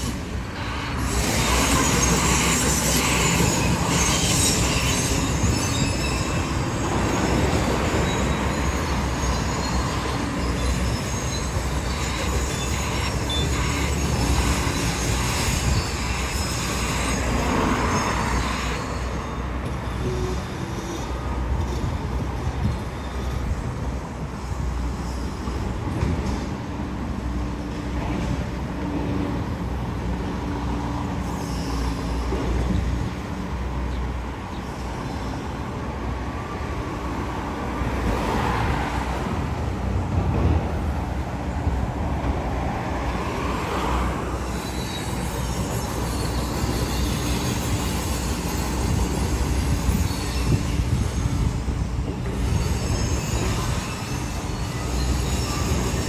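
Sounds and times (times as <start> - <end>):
road traffic passing: 0.0 - 56.0.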